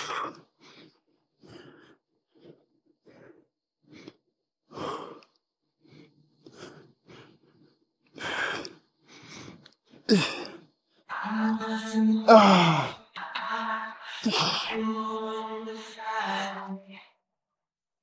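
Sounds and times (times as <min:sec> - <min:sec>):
man breathing hard: 0:00.0 - 0:11.1.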